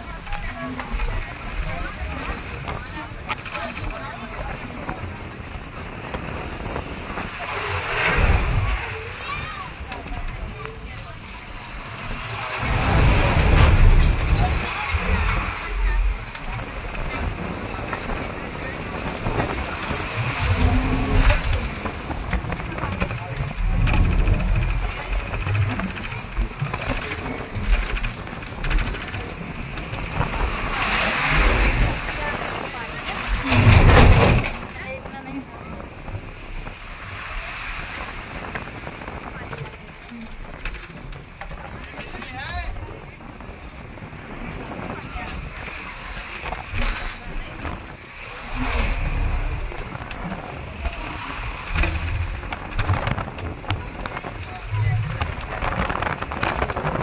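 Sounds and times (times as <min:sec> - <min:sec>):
vehicle rumble on bridge: 0:00.0 - 0:57.0
wind noise rush: 0:00.0 - 0:57.0
rapid mechanical clicking and rattling: 0:11.9 - 0:34.5, 0:45.2 - 0:57.0.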